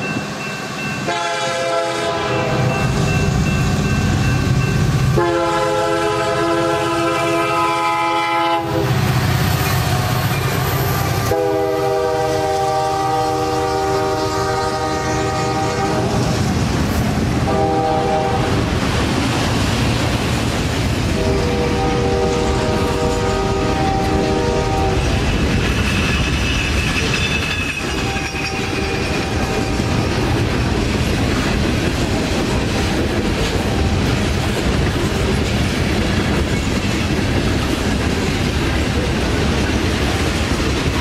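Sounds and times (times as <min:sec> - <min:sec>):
train rumble and wheel clatter: 0:00.0 - 0:41.0
locomotive air horn blasts: 0:01.1 - 0:02.9, 0:05.1 - 0:09.0, 0:11.2 - 0:16.2, 0:17.4 - 0:18.6, 0:21.1 - 0:25.2, 0:28.0 - 0:29.8.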